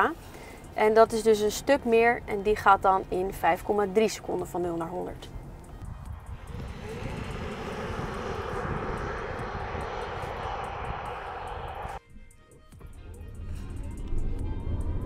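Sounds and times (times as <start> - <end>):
tyres and air rushing: 5.8 - 12.0.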